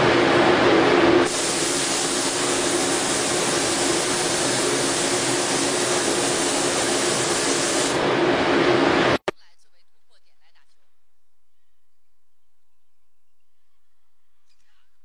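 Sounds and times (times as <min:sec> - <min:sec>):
spray guns hissing: 0:01.2 - 0:08.0
faint low hum: 0:09.2 - 0:15.0.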